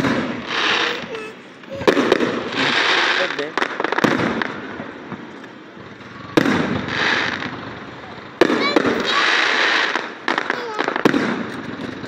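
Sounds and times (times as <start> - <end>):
firework bangs: 0.0 - 12.0
fireworks hissing and crackling: 0.0 - 12.0.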